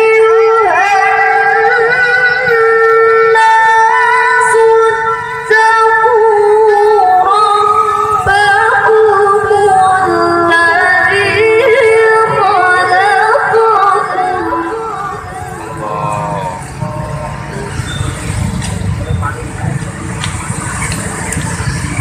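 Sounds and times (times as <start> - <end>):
woman chanting into a microphone: 0.0 - 15.2.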